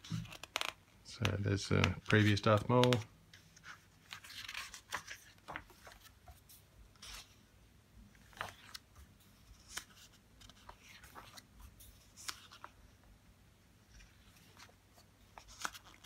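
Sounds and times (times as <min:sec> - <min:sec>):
book pages turning: 0:00.0 - 0:07.4, 0:08.1 - 0:12.9, 0:13.9 - 0:16.0.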